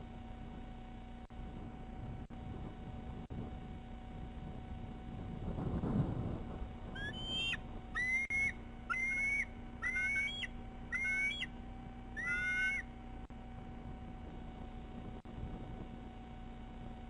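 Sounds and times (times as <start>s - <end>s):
eagle calling: 6.9s - 13.0s.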